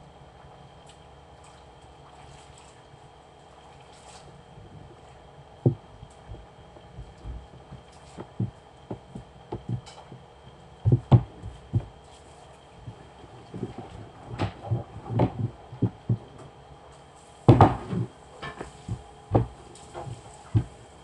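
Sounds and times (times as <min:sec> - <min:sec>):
hands slapping dough on table: 0:17.5 - 0:20.8.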